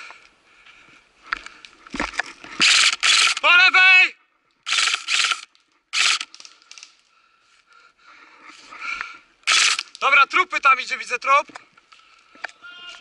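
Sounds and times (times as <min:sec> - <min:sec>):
airsoft rifle fire bursts: 0:02.6 - 0:03.4, 0:04.7 - 0:06.3, 0:09.5 - 0:09.9.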